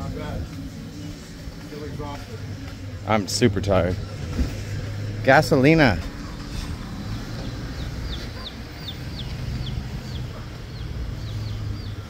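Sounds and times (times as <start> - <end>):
chicks peeping: 6.3 - 12.0.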